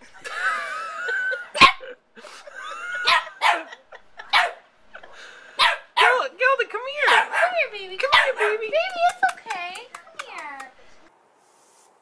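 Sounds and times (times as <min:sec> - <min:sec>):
puppy barking: 0:01.6 - 0:01.8, 0:03.0 - 0:04.6, 0:05.6 - 0:06.3, 0:07.0 - 0:08.7.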